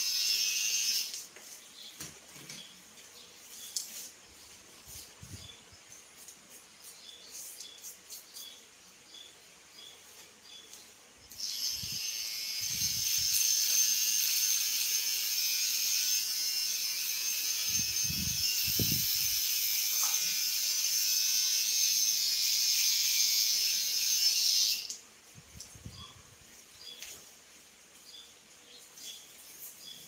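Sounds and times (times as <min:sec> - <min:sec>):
electric hair clippers buzzing: 0:00.0 - 0:01.3, 0:11.3 - 0:25.0.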